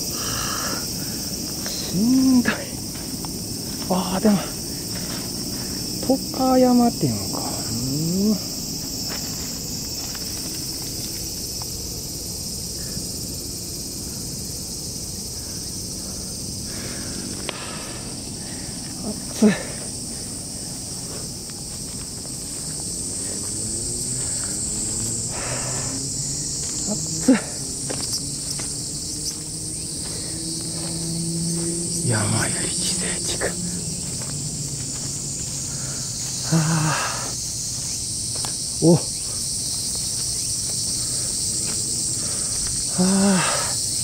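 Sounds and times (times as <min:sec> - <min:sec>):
high-pitched insect chorus: 0:00.0 - 0:44.0.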